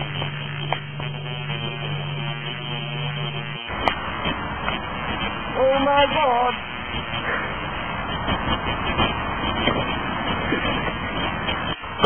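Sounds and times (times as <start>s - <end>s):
rough noise: 0.0s - 12.0s
steady hum: 0.0s - 12.0s
sharp click: 0.2s - 0.9s, 3.7s - 5.4s.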